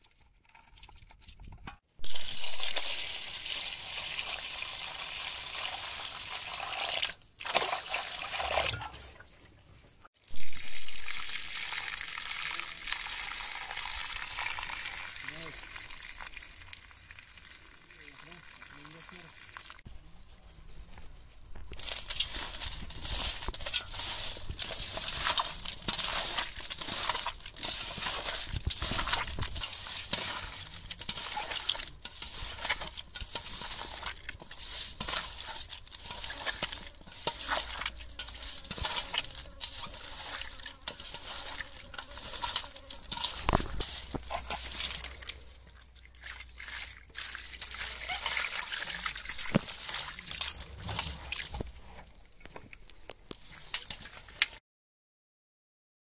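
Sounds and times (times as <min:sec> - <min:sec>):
water pouring into bowl: 0:10.5 - 0:19.8, 0:44.8 - 0:51.5
hands scrubbing meat with salt: 0:21.8 - 0:51.6.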